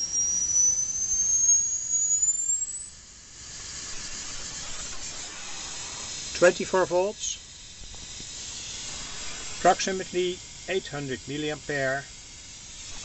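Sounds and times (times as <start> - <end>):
high-pitched whistling tone rising: 0.0 - 3.0.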